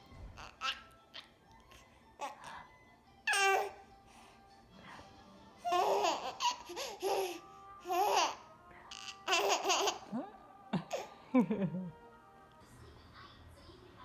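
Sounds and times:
baby laughing: 0.4s - 1.3s, 5.6s - 10.2s.

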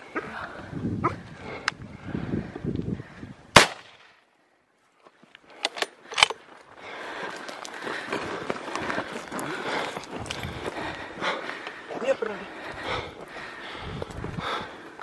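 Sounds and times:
loud gunshot: 3.6s - 4.1s
hurried footsteps in dry grass: 6.4s - 15.0s.

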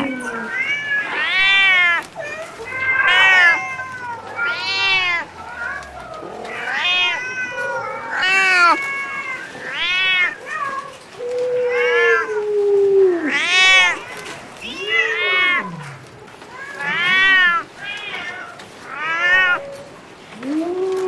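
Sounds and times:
kittens meowing: 0.0s - 12.5s, 13.1s - 21.0s.

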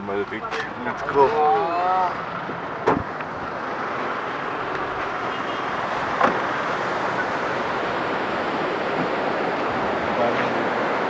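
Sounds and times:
waves breaking on a beach: 3.5s - 11.0s.

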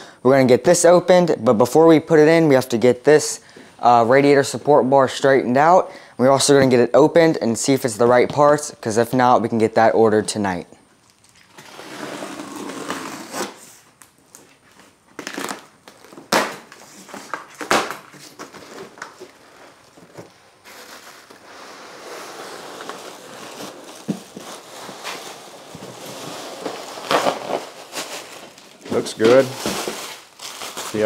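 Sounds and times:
box cutter cutting cardboard: 11.6s - 13.7s
cardboard and plastic crinkling: 12.5s - 31.0s.

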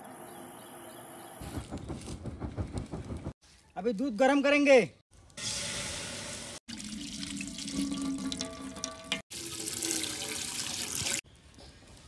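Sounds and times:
milk pouring into pot: 6.7s - 11.2s.

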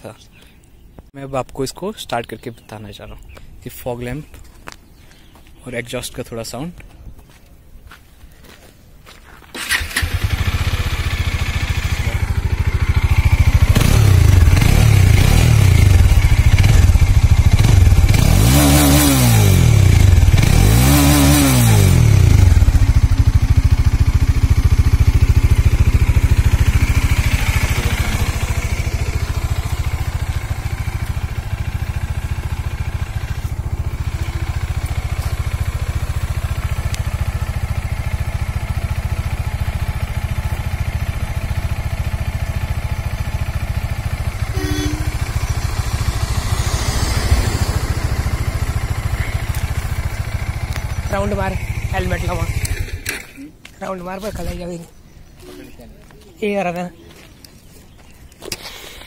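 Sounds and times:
motorcycle engine revving and idling: 9.6s - 53.5s.

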